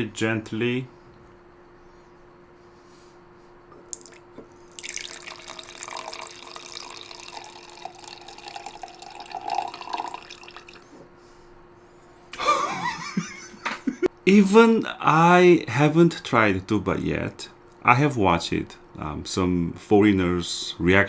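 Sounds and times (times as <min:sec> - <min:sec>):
drink pouring into glass: 0:03.9 - 0:10.8.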